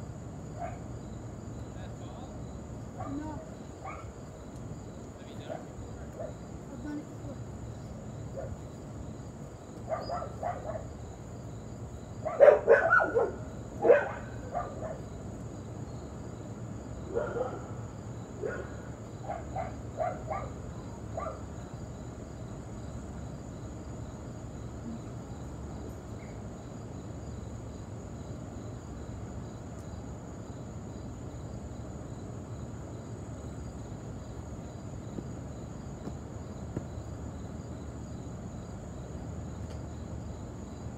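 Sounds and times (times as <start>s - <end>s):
crickets chirring: 0.0s - 40.9s
dog barks: 0.6s - 0.8s, 3.0s - 4.1s, 5.5s - 6.4s, 9.9s - 10.9s, 12.2s - 15.1s, 17.1s - 17.8s, 18.4s - 21.5s.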